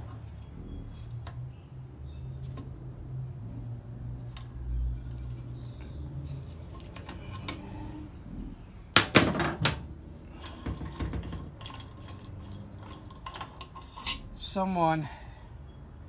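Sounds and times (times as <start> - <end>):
metal tools clanking on workbench: 10.4 - 14.5.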